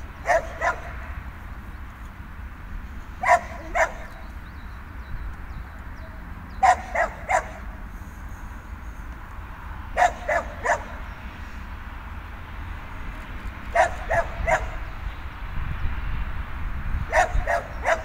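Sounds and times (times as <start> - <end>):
dog barking: 0.2 - 1.1, 3.2 - 4.2, 6.6 - 7.8, 10.0 - 11.0, 13.7 - 14.8, 17.1 - 18.0.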